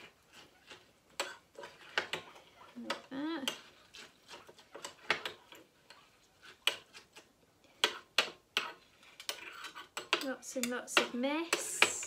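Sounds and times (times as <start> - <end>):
metal spoon scraping ceramic mug: 7.8 - 10.8.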